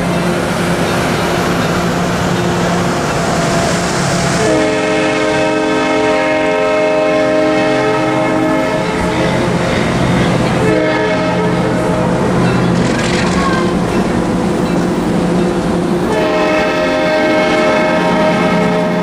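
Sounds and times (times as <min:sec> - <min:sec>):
train wheels on rails: 0:00.0 - 0:19.0
train horn: 0:04.4 - 0:09.8, 0:10.5 - 0:12.3, 0:16.0 - 0:19.0.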